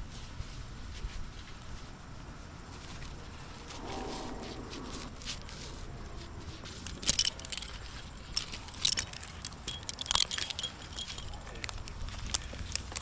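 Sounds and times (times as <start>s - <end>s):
low steady rumble: 0.0s - 13.0s
climbing hardware clinking: 6.6s - 13.0s.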